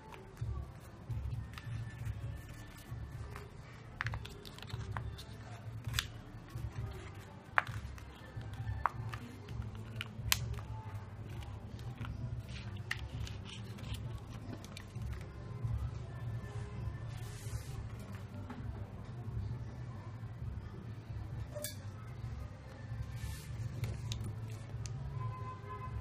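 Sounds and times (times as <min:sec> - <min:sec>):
background music: 0:00.0 - 0:26.0
paper rustling and crackling: 0:00.1 - 0:15.3
crisp paper snaps: 0:04.0 - 0:06.2.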